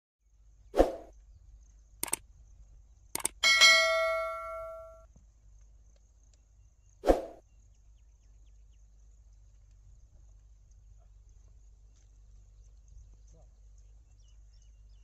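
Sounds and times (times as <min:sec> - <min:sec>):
bell ding: 0:03.4 - 0:05.0.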